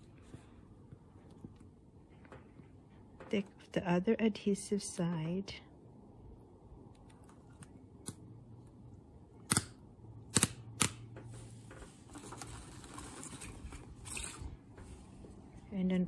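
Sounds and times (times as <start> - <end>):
sharp fingernail clicks: 9.5 - 11.0
plastic backing crinkling rustle: 11.8 - 15.3.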